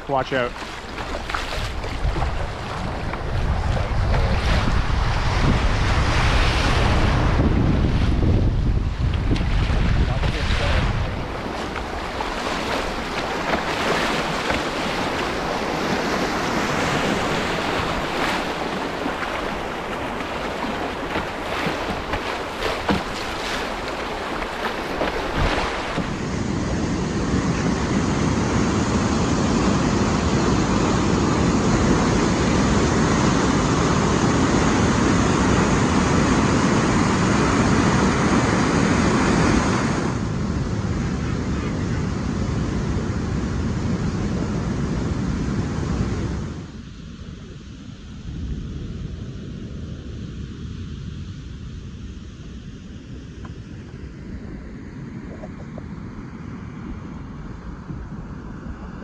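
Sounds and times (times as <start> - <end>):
floodwater rushing around canoe: 0.0 - 43.8.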